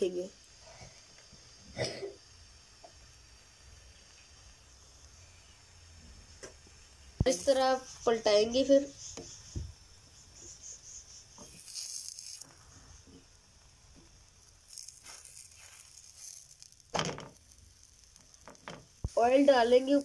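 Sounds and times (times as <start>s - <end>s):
flatbread hissing on hot pan: 0.0s - 20.0s
rustling and scraping flatbread: 14.4s - 20.0s.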